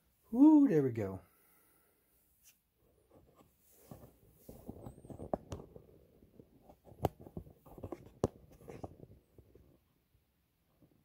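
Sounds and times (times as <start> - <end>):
objects scraping and rustling on desk: 2.4 - 5.8, 6.6 - 9.4.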